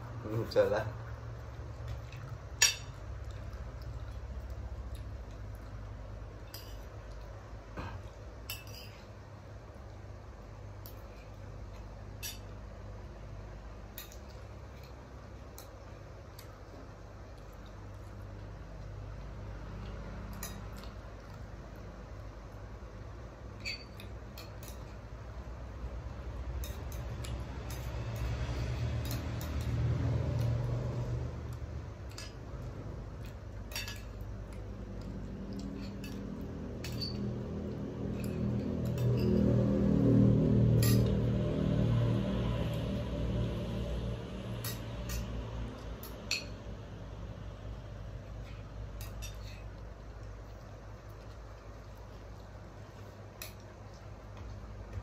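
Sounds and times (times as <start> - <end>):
steady low hum: 0.0 - 55.0
cutlery clinking on plates: 7.8 - 9.1, 33.2 - 34.2, 35.0 - 37.3, 49.0 - 49.8.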